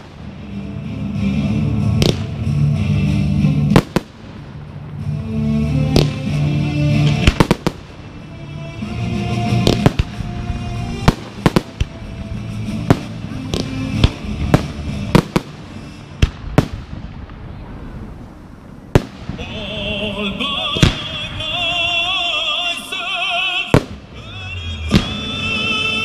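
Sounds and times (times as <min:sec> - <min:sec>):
fireworks bangs: 0:00.0 - 0:26.0.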